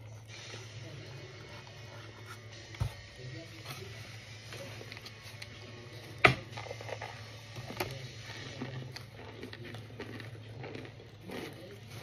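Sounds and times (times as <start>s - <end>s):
crunchy chunks being bitten: 4.7s - 12.0s.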